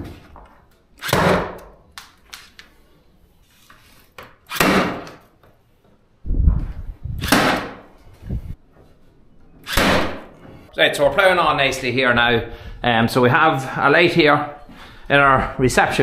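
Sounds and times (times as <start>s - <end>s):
cable stapler firing: 7.2s - 7.8s.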